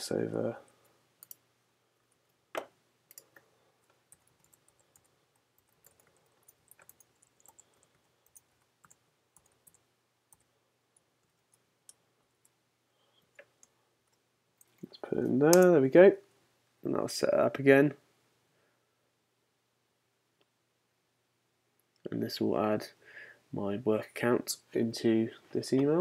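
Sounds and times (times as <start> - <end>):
keyboard typing: 3.1 - 12.6.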